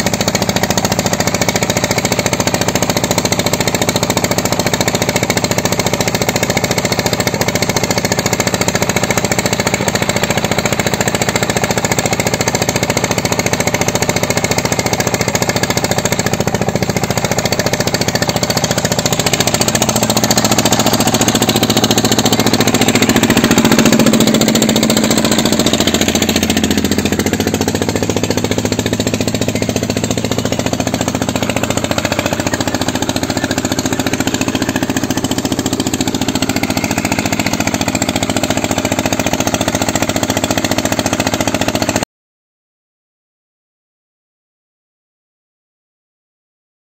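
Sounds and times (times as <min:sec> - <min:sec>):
stationary engine thudding: 0:00.0 - 0:42.0.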